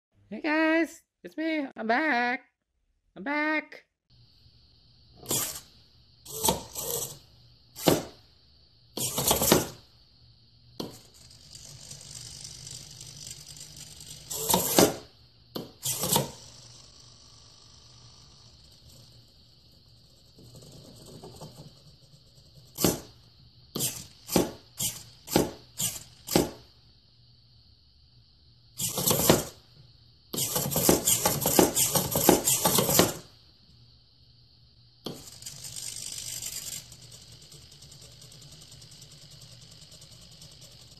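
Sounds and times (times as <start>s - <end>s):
rapid rattle: 35.2s - 40.9s.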